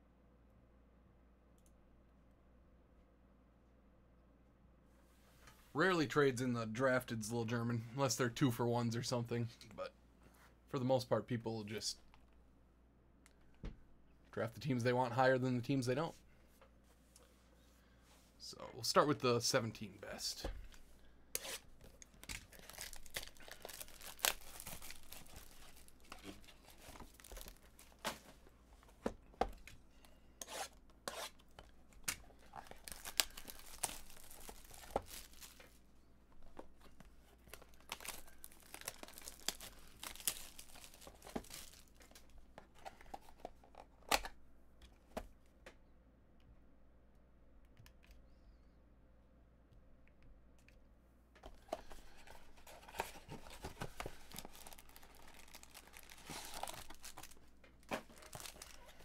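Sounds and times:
wrappers being torn open: 0:21.9 - 0:28.0, 0:32.0 - 0:35.8, 0:37.5 - 0:42.3, 0:53.6 - 0:59.0.

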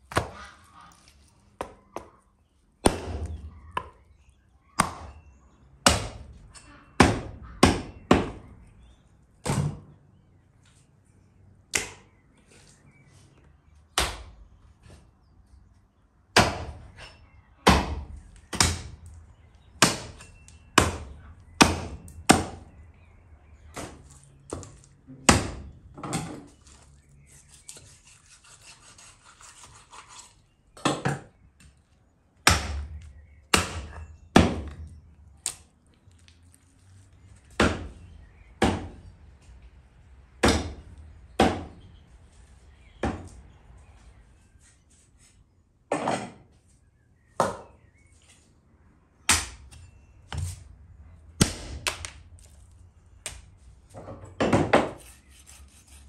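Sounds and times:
hatchet chopping meat and bone: 0:00.1 - 0:00.4, 0:02.8 - 0:04.1, 0:04.7 - 0:08.6, 0:11.7 - 0:12.2, 0:13.9 - 0:14.4, 0:16.3 - 0:19.2, 0:19.8 - 0:22.8, 0:23.7 - 0:26.5, 0:32.4 - 0:35.7, 0:37.4 - 0:39.1, 0:40.4 - 0:41.8, 0:43.0 - 0:43.4, 0:49.2 - 0:50.6, 0:51.4 - 0:52.6, 0:54.4 - 0:56.0.

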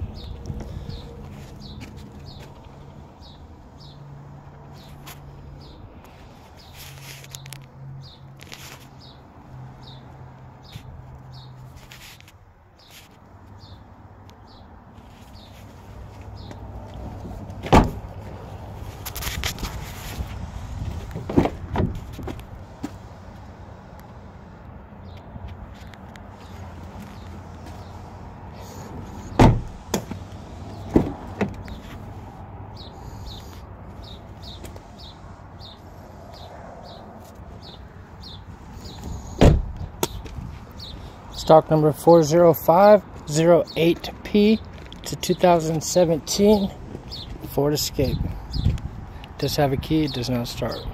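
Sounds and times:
car door slamming: 0:17.6 - 0:18.1, 0:21.1 - 0:22.4, 0:29.3 - 0:31.7, 0:39.0 - 0:40.0.

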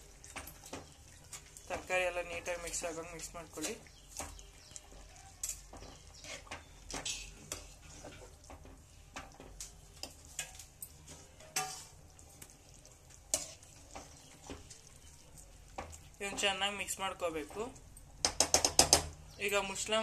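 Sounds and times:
ladle stirring in metal pot: 0:00.0 - 0:20.0
ladle scraping and clinking pot: 0:02.4 - 0:16.5.

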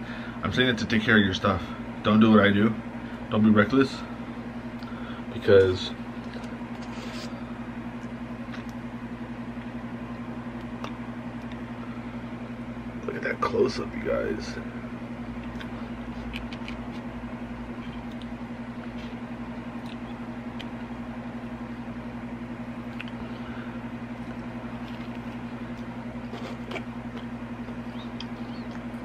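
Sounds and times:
steady low hum: 0:00.0 - 0:29.0
chewing food: 0:15.4 - 0:17.1, 0:17.7 - 0:20.8, 0:22.8 - 0:23.4, 0:24.1 - 0:29.0.

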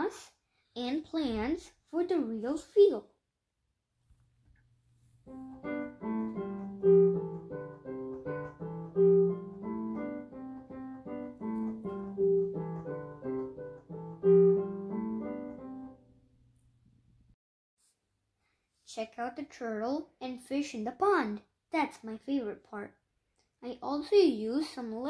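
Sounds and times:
piano melody: 0:05.2 - 0:16.5.

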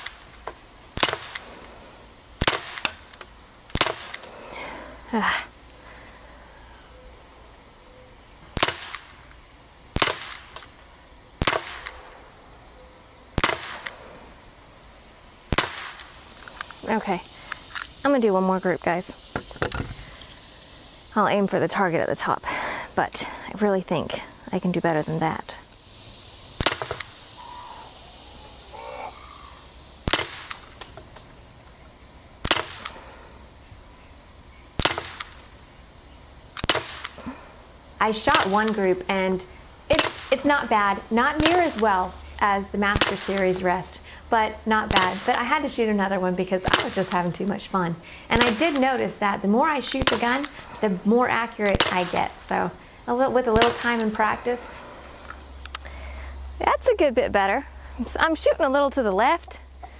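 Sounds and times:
air pistol shots: 0:01.0 - 0:01.6, 0:02.4 - 0:04.3, 0:08.6 - 0:09.2, 0:09.9 - 0:10.7, 0:11.4 - 0:12.2, 0:13.4 - 0:14.1, 0:15.5 - 0:16.2, 0:26.6 - 0:27.2, 0:30.0 - 0:30.9, 0:32.4 - 0:33.0, 0:34.8 - 0:35.5, 0:36.6 - 0:37.2, 0:39.9 - 0:40.4, 0:41.4 - 0:41.9, 0:42.9 - 0:43.5, 0:44.9 - 0:45.5, 0:48.4 - 0:48.9, 0:49.9 - 0:50.6
light clicks: 0:55.2 - 0:55.9.

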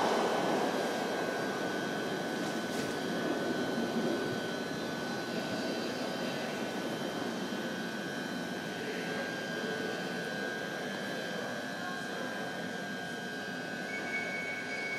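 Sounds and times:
train equipment humming: 0:00.0 - 0:05.6
thin high whine: 0:00.0 - 0:06.4.

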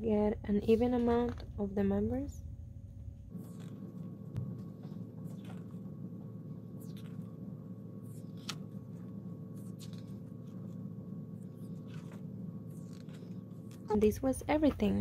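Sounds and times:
low hum: 0:00.0 - 0:15.0
calendar pages flipping: 0:03.3 - 0:05.9, 0:08.1 - 0:15.0.

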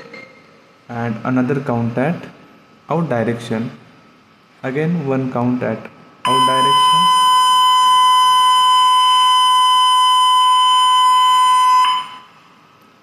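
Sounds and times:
electronic alarm tone: 0:06.3 - 0:12.5.

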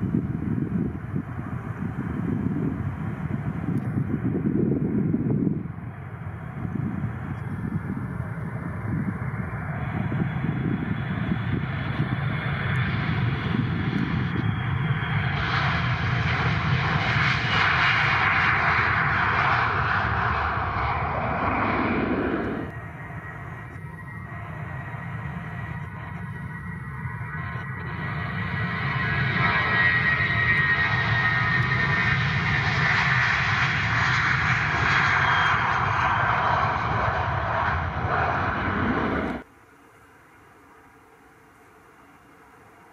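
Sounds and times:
jet engines at takeoff thrust: 0:00.0 - 0:42.9.

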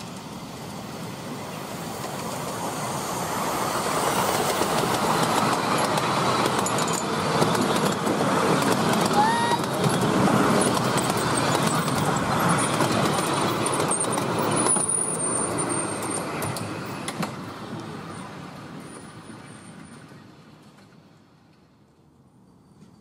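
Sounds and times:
train wheels rumbling on rails: 0:00.0 - 0:23.0.

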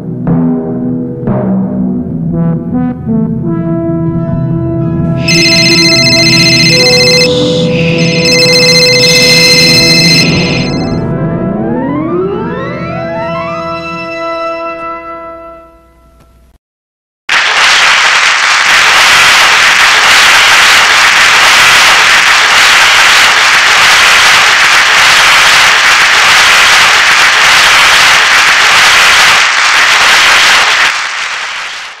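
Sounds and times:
tune notes: 0:04.8 - 0:13.9
audience clapping: 0:05.2 - 0:10.9, 0:17.3 - 0:32.0.

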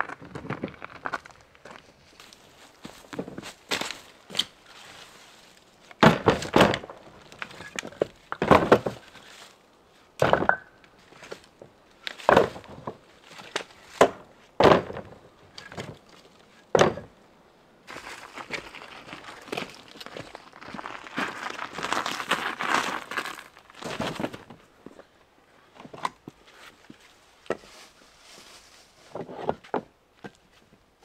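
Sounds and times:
logs knocking into wheelbarrow: 0:06.0 - 0:09.1, 0:10.2 - 0:11.4, 0:12.1 - 0:16.0, 0:16.7 - 0:17.2.

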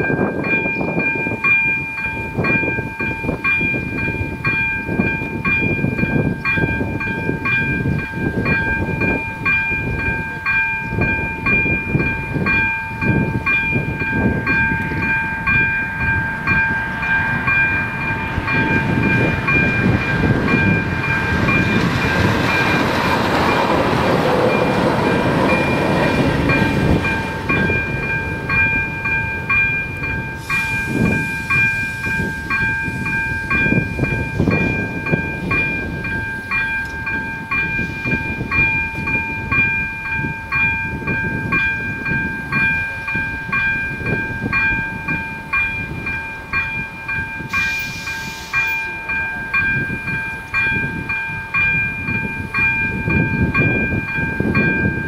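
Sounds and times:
level crossing warning bell: 0:00.0 - 0:55.0
rushing noise: 0:11.0 - 0:39.4, 0:47.4 - 0:49.2.

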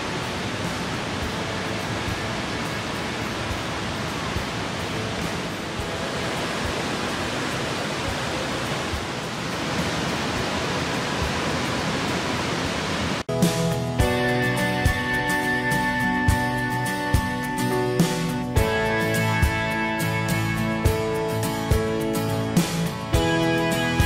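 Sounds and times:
waterfall rushing: 0:00.0 - 0:13.8.

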